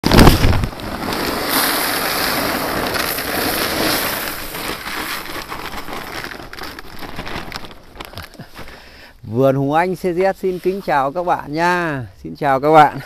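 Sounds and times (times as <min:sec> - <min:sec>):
pebbles pouring into bucket: 0:00.0 - 0:08.5.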